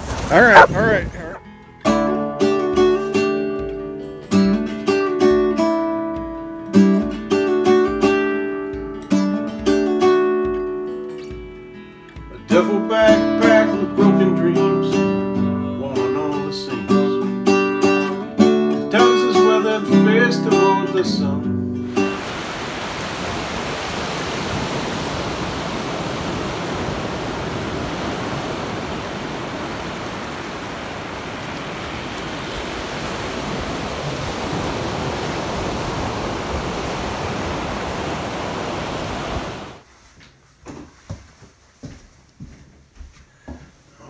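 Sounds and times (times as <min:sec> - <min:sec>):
classical guitar fingerpicked: 0:01.4 - 0:22.2.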